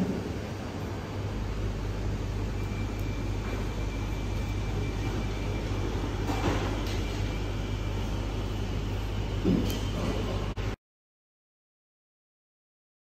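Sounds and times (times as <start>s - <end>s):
low rumble with hum: 0.0s - 10.8s.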